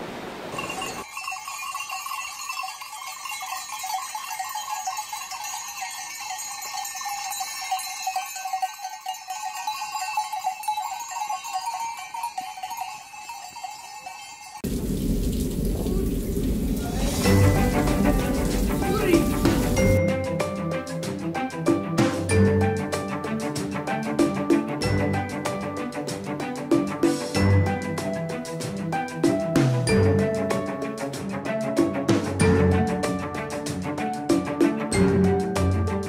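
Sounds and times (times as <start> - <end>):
waterfall rushing: 0.0 - 1.0, 14.6 - 20.0
goat bells clanking: 0.6 - 14.7.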